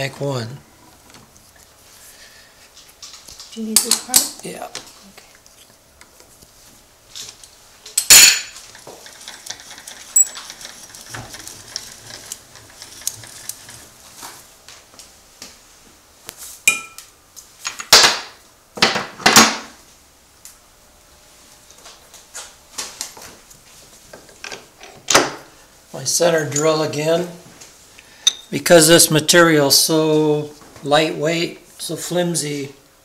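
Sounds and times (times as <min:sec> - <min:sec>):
metal tooling clanks: 0:08.0 - 0:10.6.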